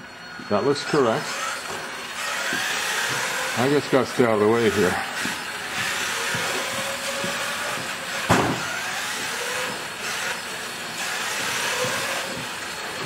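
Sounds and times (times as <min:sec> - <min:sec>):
faint motor whine: 0:00.0 - 0:13.0
toy car motor whirring: 0:00.8 - 0:13.0
sharp knock: 0:08.3 - 0:08.7.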